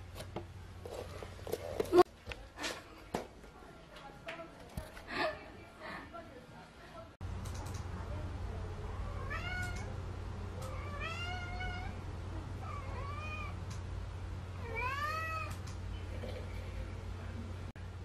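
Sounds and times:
cat meowing: 0:09.1 - 0:09.9, 0:10.6 - 0:12.0, 0:12.6 - 0:13.6, 0:14.6 - 0:15.6.

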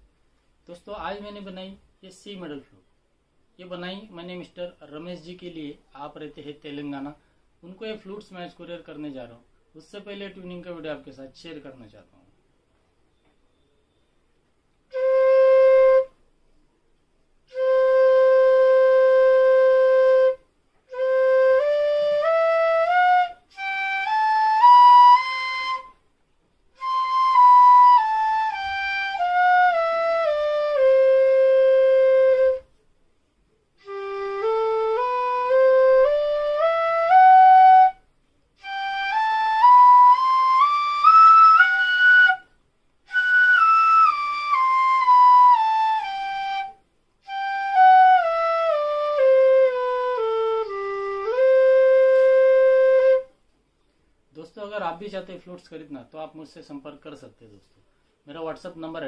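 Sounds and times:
bamboo flute playing scales: 0:14.9 - 0:16.3, 0:17.4 - 0:26.1, 0:26.7 - 0:32.8, 0:33.8 - 0:53.4.

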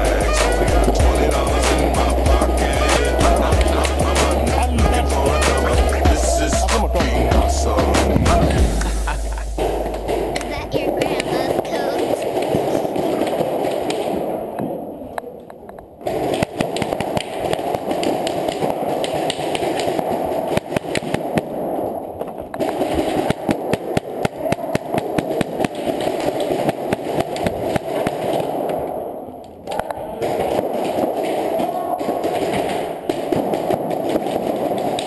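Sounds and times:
noisy background: 0:00.0 - 0:20.6
paintball guns firing: 0:16.0 - 0:21.6, 0:22.6 - 0:28.8, 0:30.2 - 0:35.0
paintballs smacking walls: 0:16.0 - 0:21.6, 0:22.6 - 0:28.9, 0:30.2 - 0:35.0.

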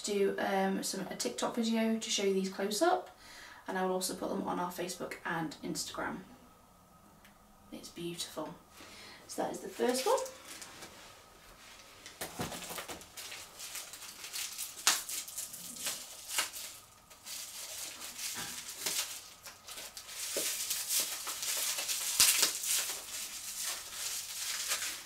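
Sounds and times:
packaging crinkling: 0:09.8 - 0:10.9, 0:11.8 - 0:25.0.

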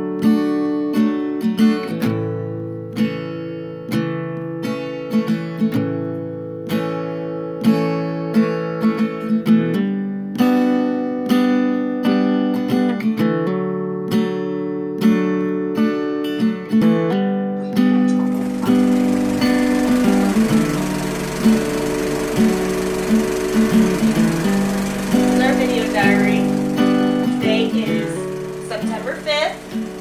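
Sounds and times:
acoustic guitar strumming: 0:16.5 - 0:30.0.

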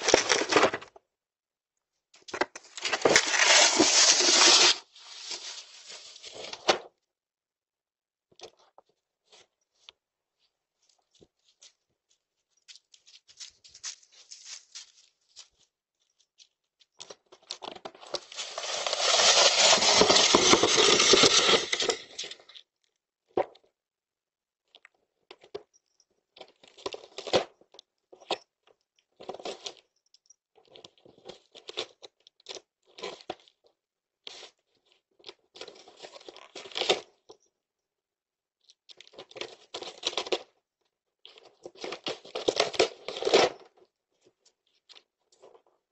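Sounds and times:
cardboard tearing and crinkling: 0:00.0 - 0:00.9, 0:02.7 - 0:06.7, 0:18.2 - 0:22.4.

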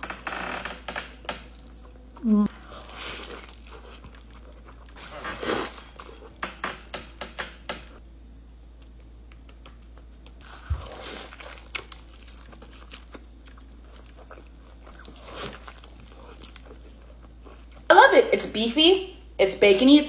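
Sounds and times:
person chewing food: 0:01.2 - 0:07.2, 0:08.7 - 0:17.9.

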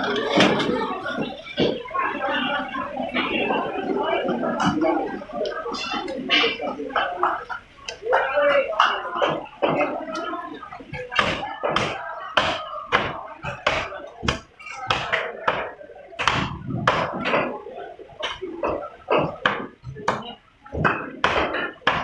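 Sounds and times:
faint market voices: 0:00.0 - 0:22.0
cleaver chopping fish: 0:11.2 - 0:17.5, 0:20.8 - 0:22.0.

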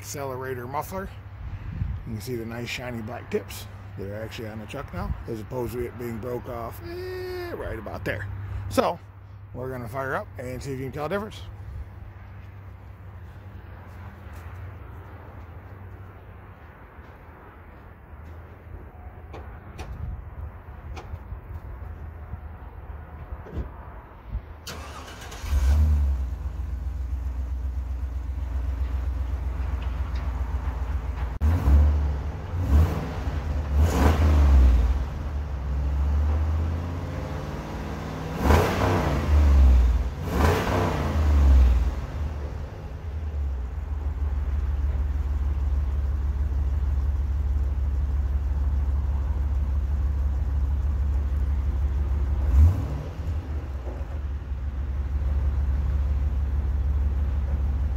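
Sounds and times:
engine starting and revving: 0:24.6 - 0:26.7, 0:31.4 - 0:35.2, 0:35.9 - 0:42.3, 0:52.4 - 0:53.8.

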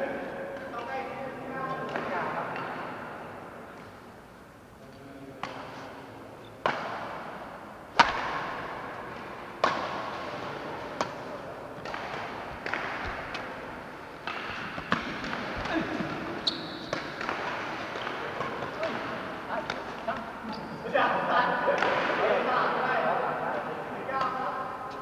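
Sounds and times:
racquets striking shuttlecock: 0:06.6 - 0:20.6.

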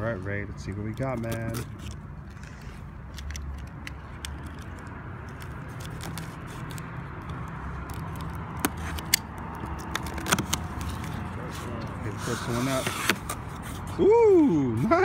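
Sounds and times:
tape and cardboard cracking: 0:00.7 - 0:14.0
box cutter slitting packing tape: 0:01.0 - 0:02.8, 0:05.3 - 0:10.9, 0:12.3 - 0:13.8
light scrapes: 0:11.3 - 0:14.0.

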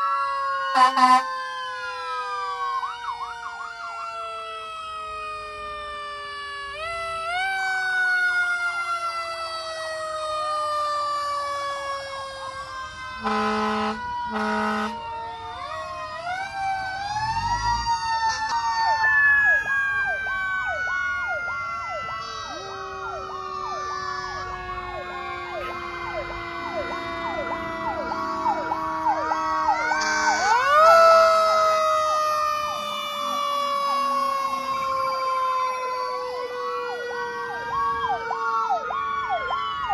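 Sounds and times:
fire truck sirens wailing: 0:00.0 - 0:39.9
yelping sirens: 0:00.0 - 0:39.9
horn blasts: 0:00.8 - 0:01.3, 0:13.2 - 0:15.0.

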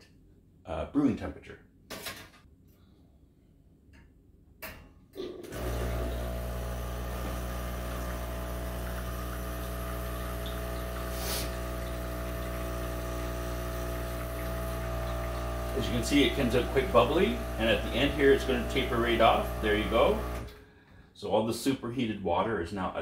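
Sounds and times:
espresso machine pump humming: 0:05.5 - 0:20.6
water spraying into cup: 0:05.6 - 0:20.5.

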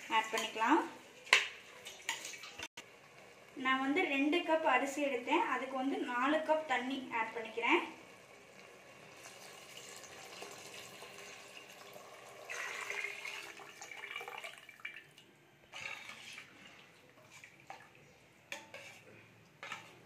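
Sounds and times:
water pouring into a pot: 0:01.6 - 0:03.5, 0:08.1 - 0:18.0.

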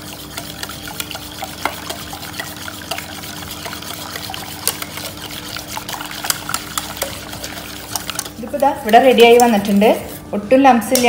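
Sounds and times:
whisk clicking against steel bowl: 0:00.0 - 0:10.2
liquid churning: 0:00.0 - 0:10.4.

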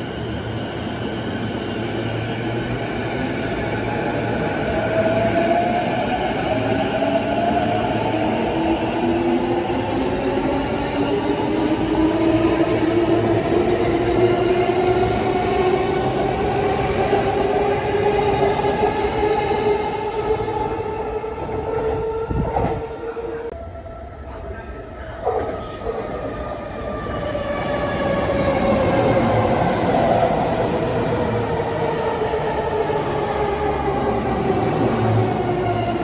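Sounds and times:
train wheels rumbling on rails: 0:01.1 - 0:23.5.

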